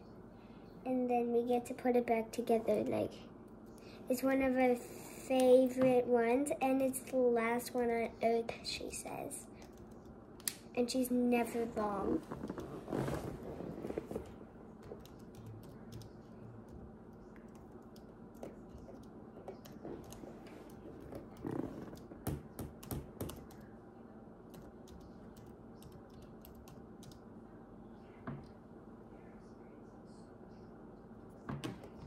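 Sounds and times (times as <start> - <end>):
laptop keyboard typing: 9.6 - 10.1, 14.2 - 23.7, 24.5 - 27.2.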